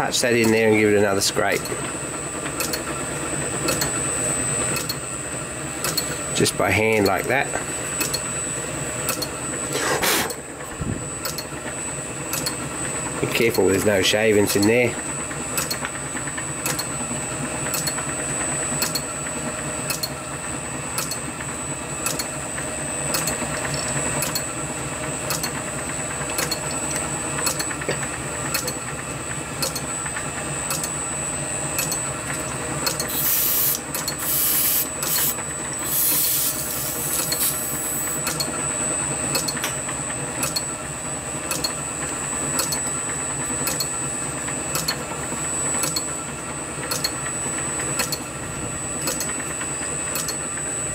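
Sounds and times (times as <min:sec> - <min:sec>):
lathe humming: 0:33.1 - 0:38.2
short bursts of hiss: 0:33.1 - 0:38.2.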